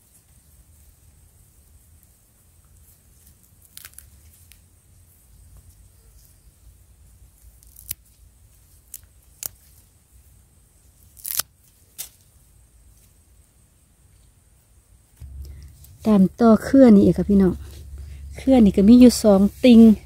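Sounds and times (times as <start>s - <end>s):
roots snapping: 3.6s - 4.1s, 7.6s - 8.0s, 11.1s - 12.2s.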